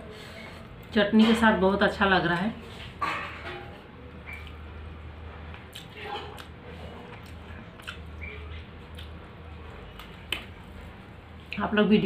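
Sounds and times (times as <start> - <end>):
chewing: 4.2 - 11.6.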